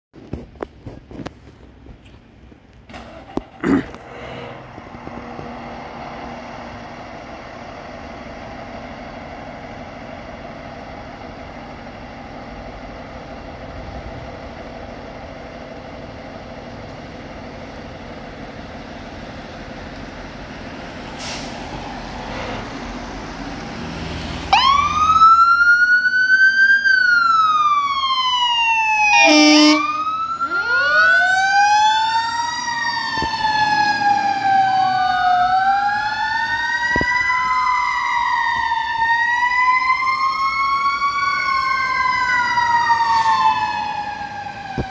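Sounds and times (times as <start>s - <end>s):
fire engine running: 0.2s - 44.9s
siren wailing: 24.5s - 44.9s
short horn blast: 29.1s - 30.0s.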